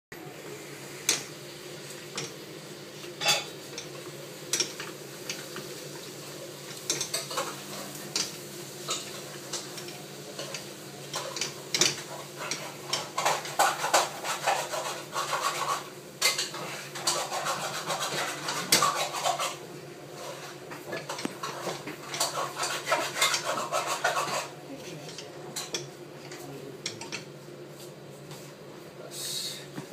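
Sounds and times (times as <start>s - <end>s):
wooden spatula scraping a pan: 6.0s - 25.8s.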